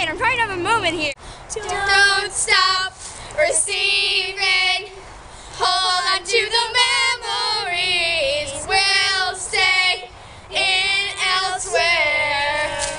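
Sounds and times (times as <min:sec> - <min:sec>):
girls singing together: 0:01.5 - 0:12.9.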